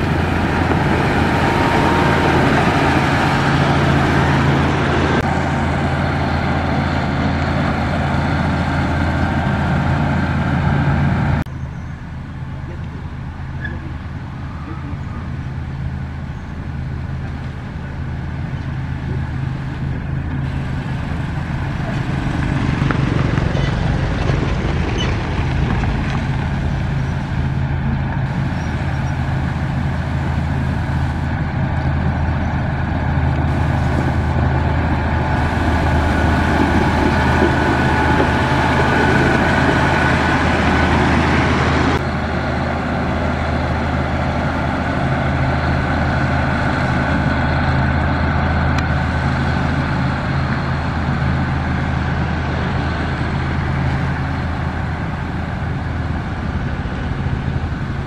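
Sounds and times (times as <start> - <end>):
diesel engine running under load: 0.0 - 58.0
gravel hissing under blade and tyres: 18.7 - 47.7.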